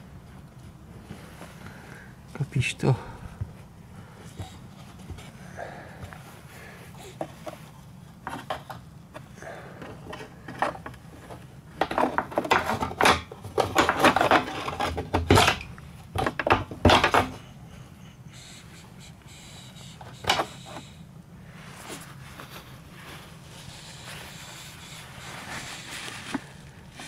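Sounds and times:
hands clattering on plastic: 0:07.1 - 0:17.5.

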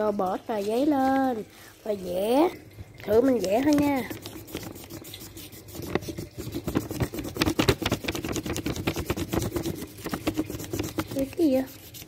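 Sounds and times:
crayon scribbling on paper: 0:03.4 - 0:12.0.

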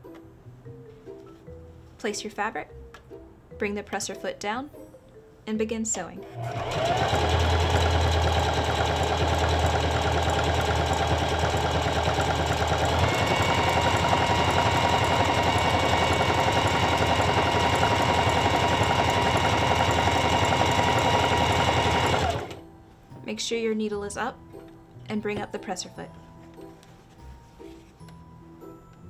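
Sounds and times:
electric sewing machine running: 0:06.3 - 0:22.6.

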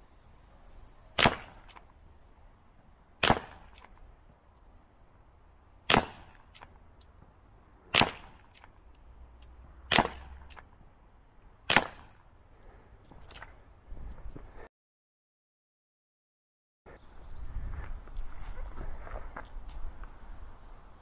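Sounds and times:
air gun shots cracking: 0:01.2 - 0:01.9, 0:03.2 - 0:04.0, 0:05.9 - 0:06.7, 0:07.9 - 0:08.7, 0:09.9 - 0:10.7, 0:11.7 - 0:12.2.

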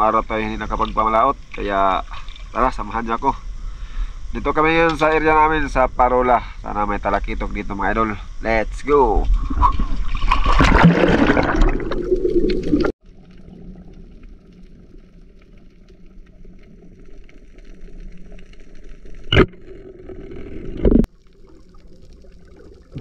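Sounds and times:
water splashing: 0:09.3 - 0:23.0
muffled underwater rumble: 0:11.6 - 0:23.0.

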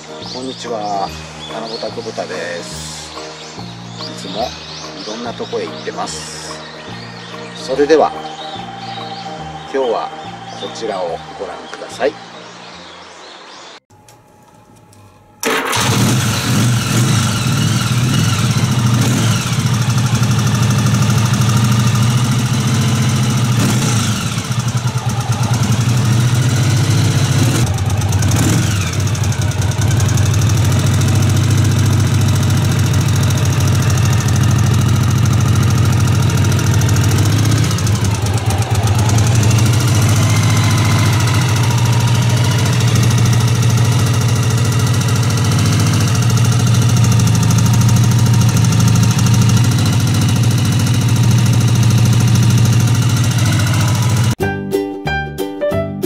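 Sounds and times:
motorcycle engine starting and idling: 0:15.4 - 0:54.4.

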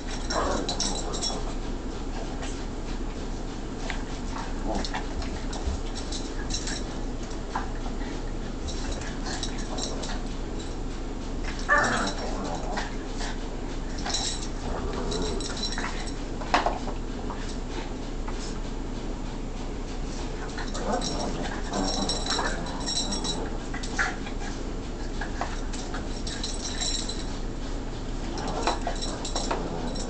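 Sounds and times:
dogs scuffling: 0:00.0 - 0:18.6, 0:19.7 - 0:30.0
dog whining: 0:11.7 - 0:12.4.

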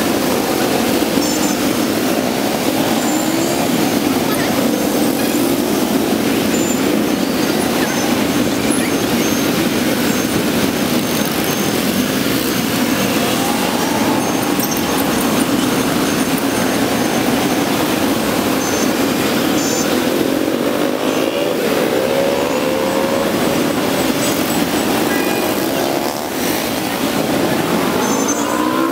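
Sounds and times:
motorbike accelerating: 0:00.0 - 0:28.9
motorbike traffic streaming past: 0:00.0 - 0:28.9.

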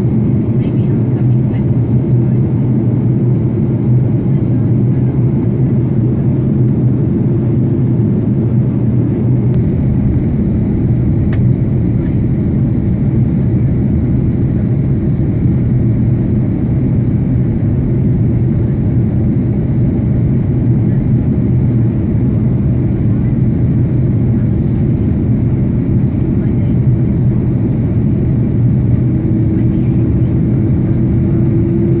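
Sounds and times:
airliner cabin engine rumble: 0:00.0 - 0:32.0.

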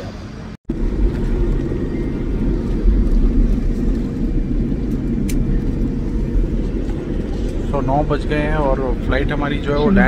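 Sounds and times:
airliner cabin engine rumble: 0:00.0 - 0:10.0.

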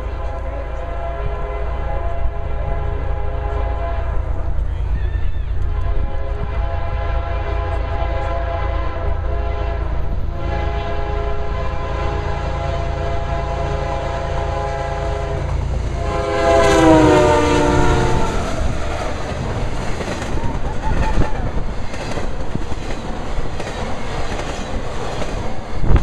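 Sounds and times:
locomotive air horn blasts: 0:00.0 - 0:04.6, 0:05.5 - 0:19.3
locomotive engine rumble: 0:00.0 - 0:26.0.

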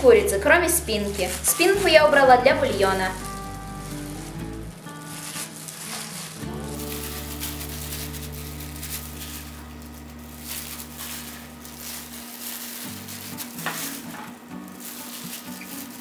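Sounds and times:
background music with low notes: 0:00.0 - 0:16.0
wet crackly handling of chicken: 0:02.8 - 0:09.6.

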